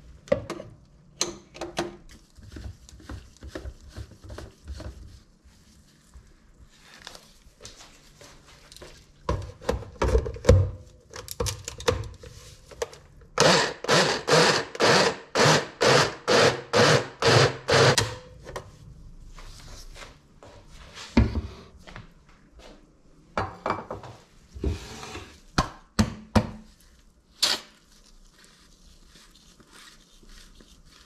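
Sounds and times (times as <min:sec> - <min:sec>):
blender pulsing: 0:13.4 - 0:18.0.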